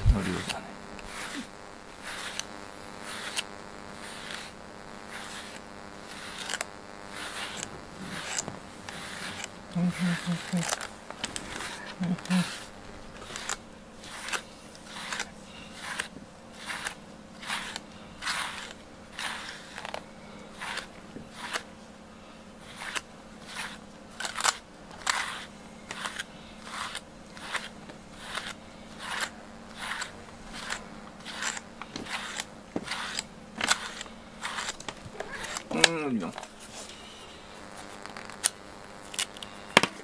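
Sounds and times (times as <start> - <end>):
brush raking through fur: 0.0 - 39.7.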